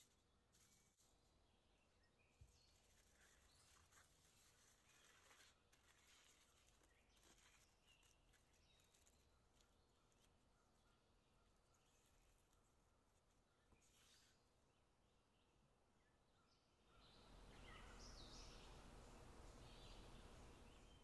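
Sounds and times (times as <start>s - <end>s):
faint foil crinkling: 0.0s - 1.3s, 2.1s - 14.4s.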